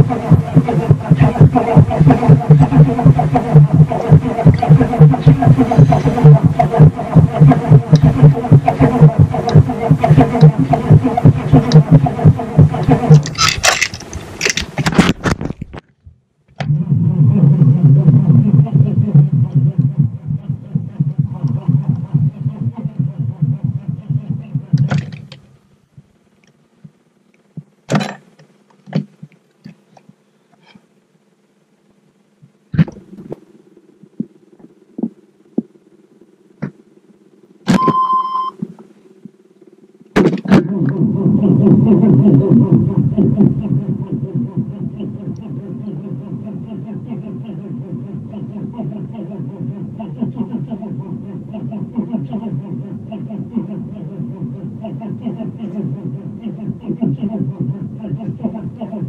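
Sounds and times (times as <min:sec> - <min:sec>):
dashboard warning chime beep: 0:37.8 - 0:38.6.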